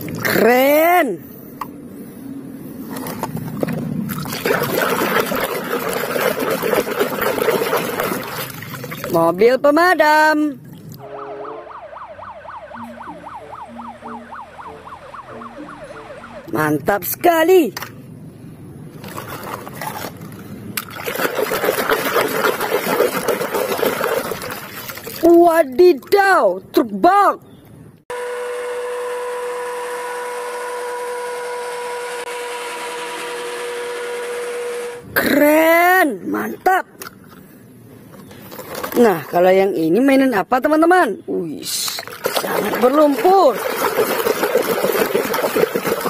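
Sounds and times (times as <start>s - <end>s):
water sloshing and splashing: 0.0s - 0.6s, 2.8s - 9.5s, 10.5s - 11.0s, 18.9s - 26.4s, 36.9s - 39.7s, 41.7s - 46.0s
scrubbing plastic toy: 2.9s - 9.2s, 19.0s - 25.3s, 41.7s - 46.0s.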